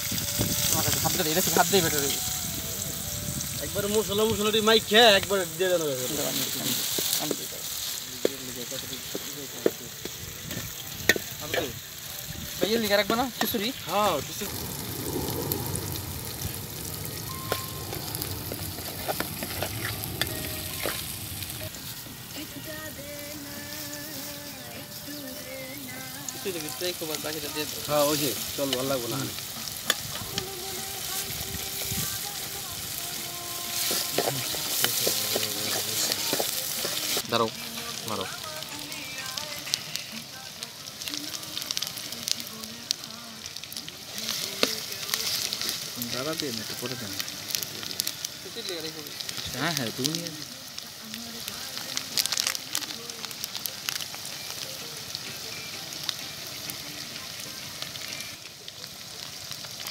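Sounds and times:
onions sizzling in oil: 0.0s - 59.9s
metal spatula stirring: 18.8s - 21.2s, 29.5s - 30.5s, 33.6s - 37.2s.

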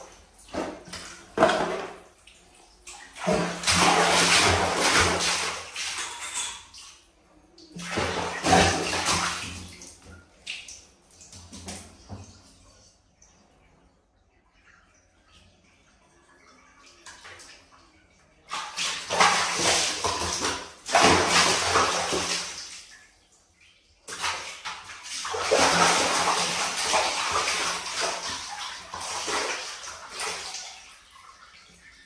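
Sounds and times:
water splashing in plastic basin: 0.0s - 12.6s, 18.4s - 23.2s, 23.8s - 32.0s.

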